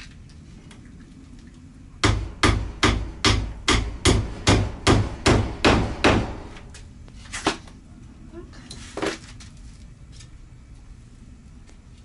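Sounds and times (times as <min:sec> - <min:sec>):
hammer nailing wood: 0:02.0 - 0:06.7.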